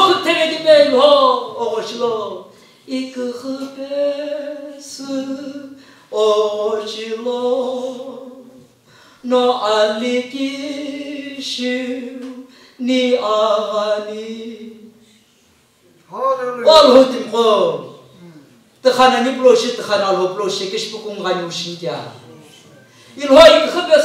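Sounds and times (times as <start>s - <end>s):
man singing unaccompanied: 0.0s - 8.6s, 9.2s - 14.9s
singer breathing: 5.7s - 6.1s, 8.8s - 9.3s, 12.4s - 12.8s, 22.8s - 23.2s.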